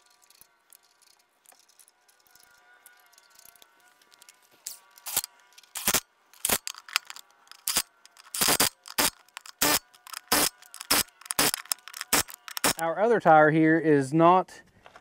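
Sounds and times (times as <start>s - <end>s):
insect trilling: 0.0s - 12.8s.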